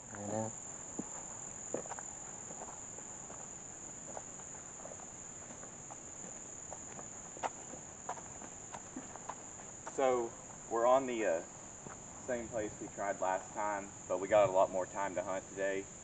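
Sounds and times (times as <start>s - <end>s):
insects droning: 0.0s - 16.0s
footsteps crunching on dry leaves: 0.9s - 10.7s.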